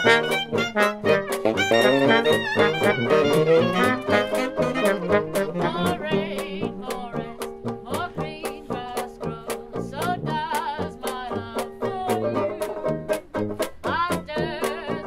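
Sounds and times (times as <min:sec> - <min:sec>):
hot jazz band playing: 0:00.0 - 0:07.0
banjo and washboard beat: 0:00.0 - 0:15.0.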